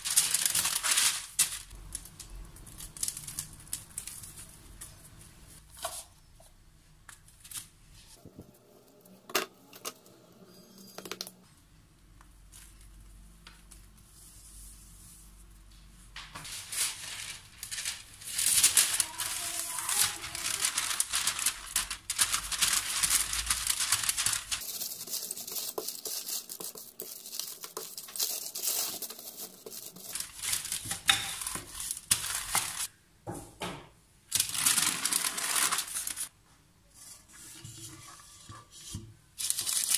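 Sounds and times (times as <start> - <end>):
parchment paper crinkling: 0.0 - 6.2, 12.2 - 32.9, 34.3 - 36.3, 38.8 - 39.9.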